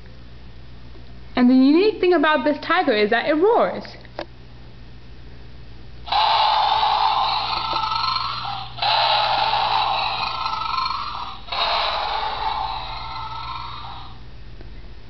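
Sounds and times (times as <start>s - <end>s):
recorded tiger roar from toy: 6.1s - 14.2s.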